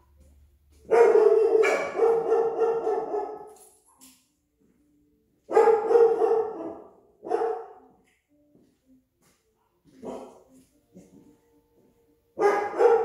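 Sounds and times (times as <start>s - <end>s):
dog barking loudly: 0.8s - 3.6s, 5.5s - 7.8s, 10.0s - 10.4s, 12.4s - 13.0s.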